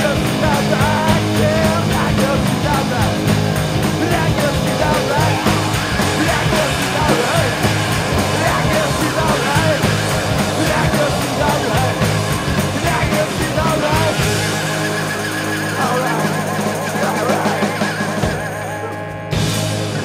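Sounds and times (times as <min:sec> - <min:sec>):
rock band playing: 0:00.0 - 0:20.0
wavering lead guitar: 0:00.0 - 0:20.0.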